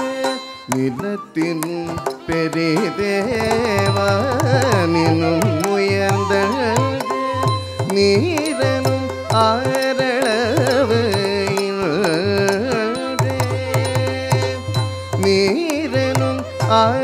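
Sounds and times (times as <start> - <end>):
voice singing ornamented notes: 0.0 - 17.0.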